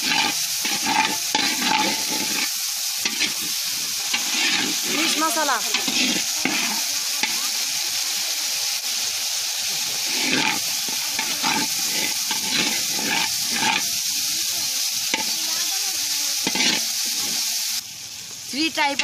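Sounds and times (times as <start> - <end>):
metal spatula scraping a pan: 0.0 - 7.4, 10.0 - 14.2, 15.0 - 15.5, 16.4 - 17.8
paste sizzling in hot oil: 0.0 - 19.0.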